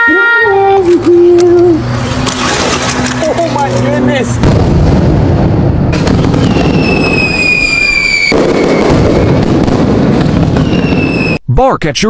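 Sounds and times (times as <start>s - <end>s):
dense crackling noise: 3.2s - 12.0s
high falling whistle: 6.4s - 9.4s, 10.5s - 11.4s.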